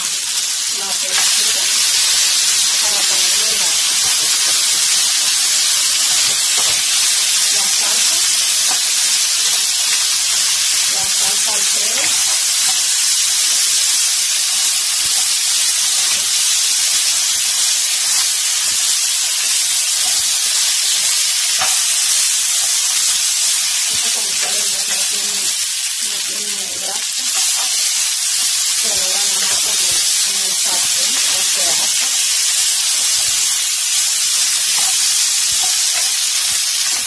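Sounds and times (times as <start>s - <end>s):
chicken sizzling in frying pan: 0.0s - 37.0s
spatula stirring in pan: 26.4s - 37.0s.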